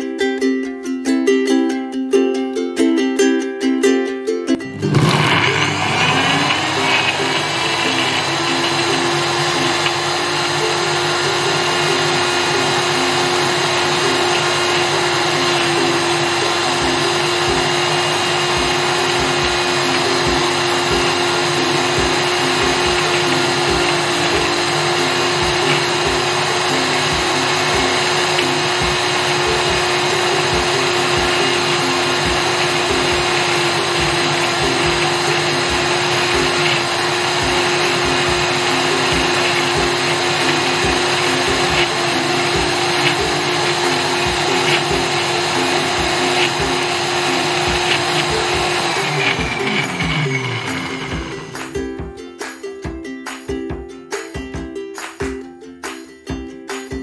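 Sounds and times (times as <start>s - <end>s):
blender motor whining: 4.7s - 51.7s.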